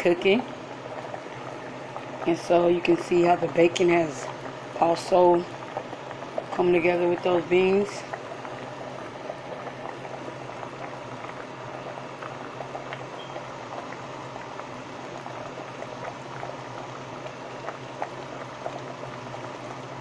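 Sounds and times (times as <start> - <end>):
pot of beans bubbling: 0.0 - 20.0
steady low hum: 0.0 - 20.0.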